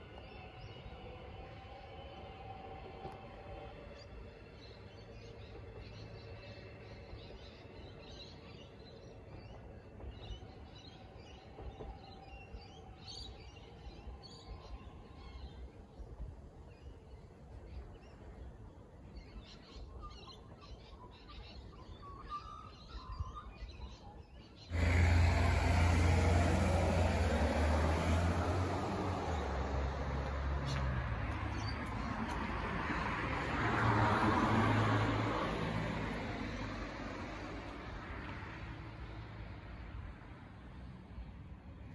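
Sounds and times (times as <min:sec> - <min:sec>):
loud rush of broad noise: 0:24.7 - 0:30.6.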